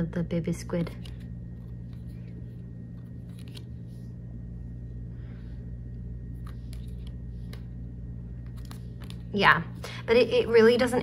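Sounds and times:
low room hum: 0.0s - 11.0s
cards clicking: 3.0s - 3.7s, 6.3s - 7.7s.

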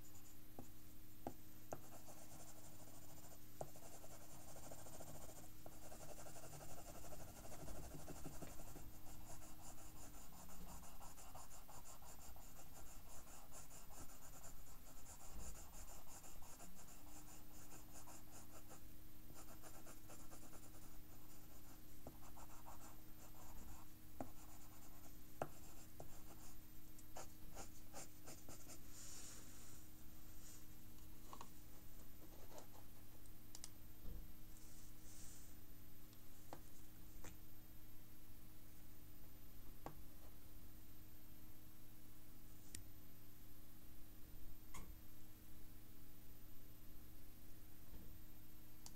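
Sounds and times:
pencil scratching on paper: 1.8s - 18.8s, 19.4s - 26.5s, 27.2s - 28.8s.

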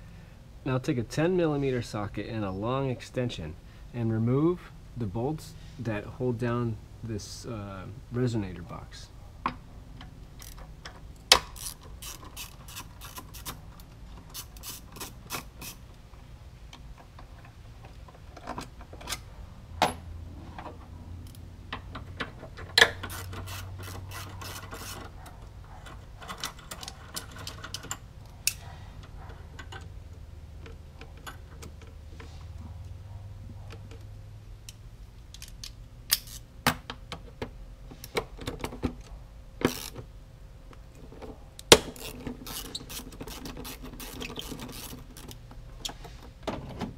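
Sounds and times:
socket ratchet clicking: 11.3s - 13.6s, 35.3s - 36.4s, 41.6s - 45.5s.

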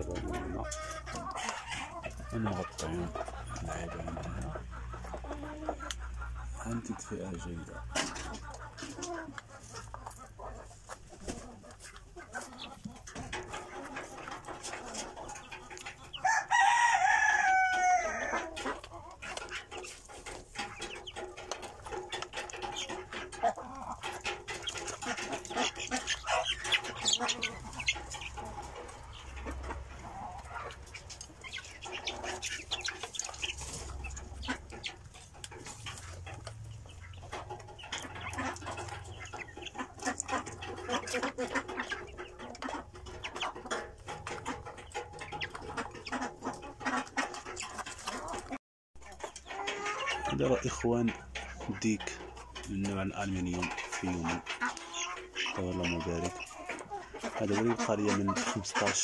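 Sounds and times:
chicks cheeping: 0.0s - 59.0s
rooster crowing: 16.2s - 18.3s.

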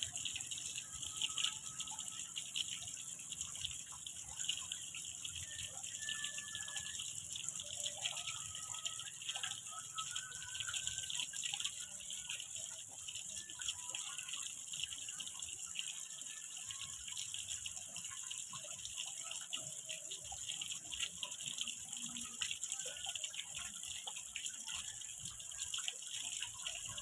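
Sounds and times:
fountain spray splashing water: 0.0s - 27.0s.

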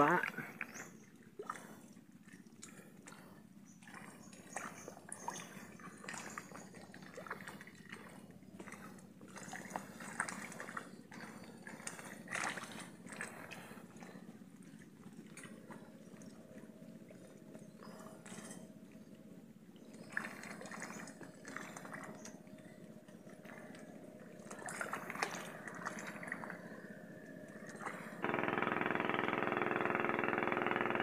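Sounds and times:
small splashes: 0.0s - 14.0s, 19.8s - 22.4s, 23.4s - 26.8s
water sloshing and lapping: 0.0s - 28.3s.

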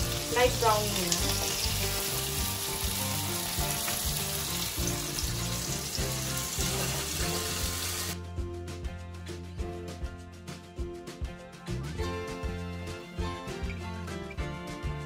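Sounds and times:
onions sizzling in oil: 0.0s - 8.2s
background music: 0.0s - 15.0s.

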